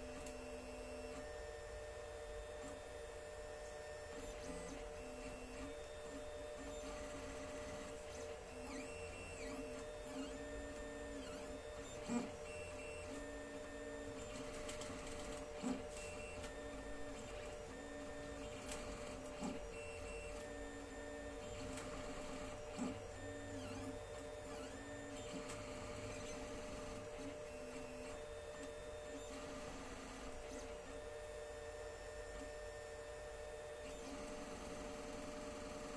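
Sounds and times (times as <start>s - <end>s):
stepper motors whining: 4.0s - 30.9s.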